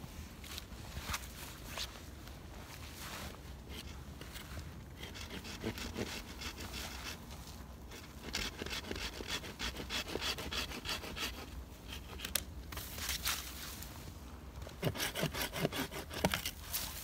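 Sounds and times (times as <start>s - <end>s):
hand saw cutting branch: 5.0s - 7.2s, 7.9s - 12.5s, 14.7s - 16.8s.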